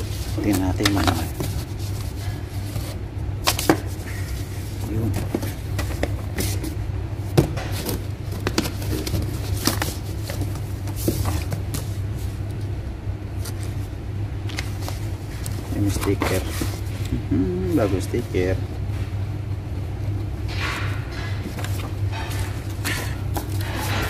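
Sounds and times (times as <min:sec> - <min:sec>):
paper rustling: 0:00.0 - 0:06.8, 0:07.7 - 0:12.6, 0:14.5 - 0:17.1
steady low hum: 0:00.0 - 0:24.0.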